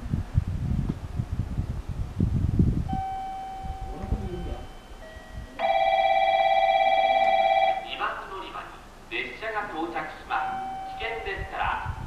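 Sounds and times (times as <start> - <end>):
electronic chime tones: 3.0 - 7.8, 10.4 - 11.2
rapidly trilling electronic bell: 3.0 - 7.9, 10.4 - 11.2.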